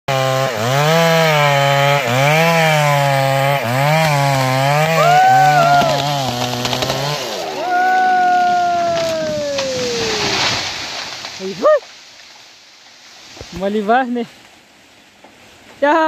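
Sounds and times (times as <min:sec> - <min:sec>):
chainsaw cutting wood: 0:00.1 - 0:07.6.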